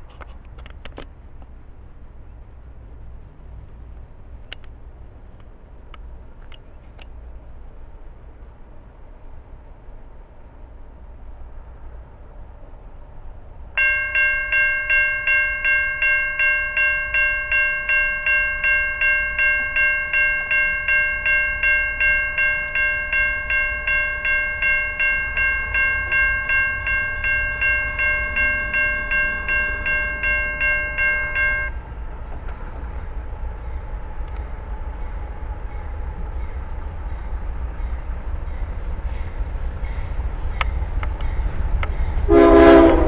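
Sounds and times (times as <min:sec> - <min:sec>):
faint steady rumble: 0:00.0 - 0:43.0
railroad crossing bell ringing: 0:13.8 - 0:43.0.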